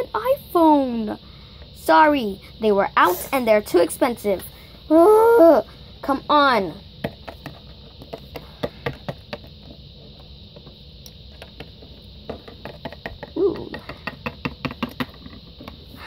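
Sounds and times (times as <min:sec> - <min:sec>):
plastic figurines tapping on table: 0:12.3 - 0:15.8.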